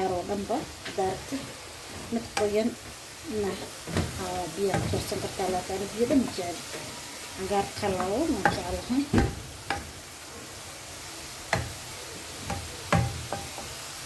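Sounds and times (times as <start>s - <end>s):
frying sizzle: 0.0s - 14.0s
wooden spoon scraping pan: 3.8s - 9.8s
spoon knocking against pan: 3.9s - 5.6s, 7.6s - 10.0s, 11.5s - 11.8s, 12.4s - 13.8s.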